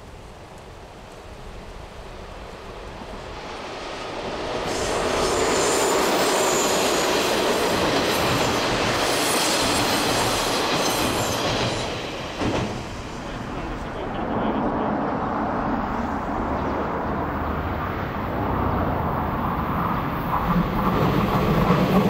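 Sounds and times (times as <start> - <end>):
diesel locomotive running past: 0.2 - 22.0
wheels squealing on curve: 4.6 - 12.1.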